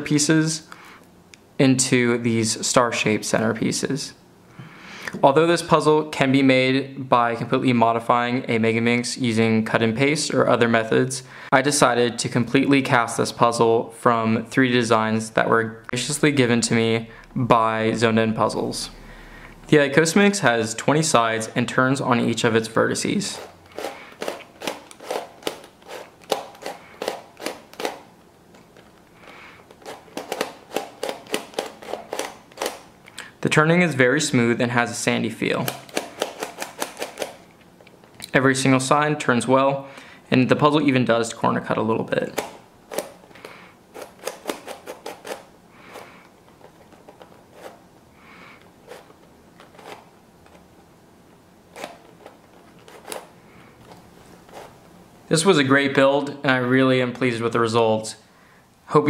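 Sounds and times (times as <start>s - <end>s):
plastic puzzle clacking: 28.6s - 32.9s, 35.6s - 37.4s, 42.3s - 47.8s, 51.8s - 54.7s
twisty puzzle clicking and clacking: 29.7s - 32.9s, 35.6s - 37.4s, 44.0s - 45.4s.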